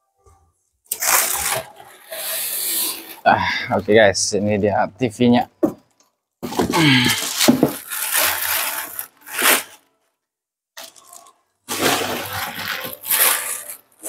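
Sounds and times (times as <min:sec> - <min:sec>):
packaging rustling and scraping: 0:00.9 - 0:03.4, 0:06.4 - 0:10.0, 0:10.8 - 0:14.0.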